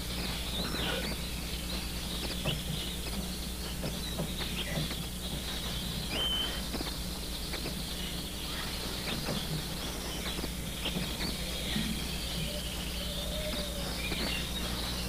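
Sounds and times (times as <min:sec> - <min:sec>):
birds chirping: 0:00.0 - 0:15.0
steady low hum: 0:00.0 - 0:15.0
bird whistle: 0:03.8 - 0:15.0.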